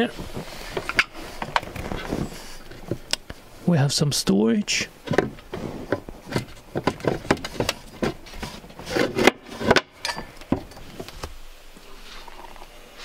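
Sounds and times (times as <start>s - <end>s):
hatch lid knocking and rubbing: 5.0s - 10.8s.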